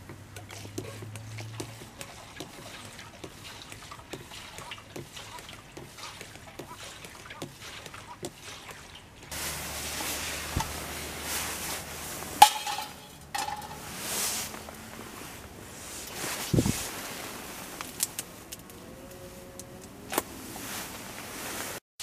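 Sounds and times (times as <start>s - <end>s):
siphon pump clicks and taps: 0.0s - 9.3s, 12.4s - 13.8s
steady outdoor hiss: 0.0s - 21.8s
frying pan clanking on metal: 12.4s - 13.9s.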